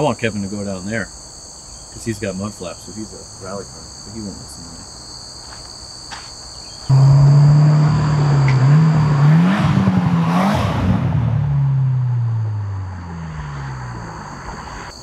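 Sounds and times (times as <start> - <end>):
insects chirping: 0.0 - 15.0
car accelerating past: 6.9 - 14.9.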